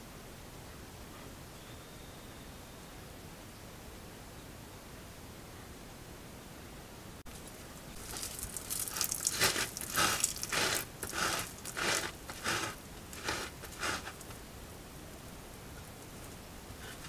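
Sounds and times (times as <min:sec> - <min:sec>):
animal scratching dirt with feet: 0:07.3 - 0:14.3.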